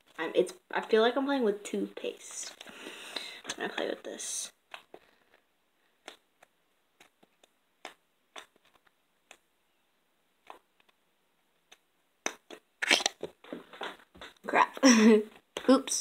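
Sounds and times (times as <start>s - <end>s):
slime squeezed with clicks and pops: 11.6s - 13.4s.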